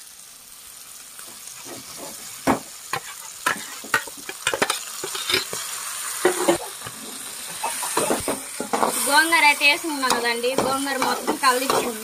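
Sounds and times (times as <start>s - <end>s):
meat sizzling in a pan: 0.0s - 12.0s
metal ladle scraping a pan: 1.6s - 9.2s, 10.8s - 12.0s.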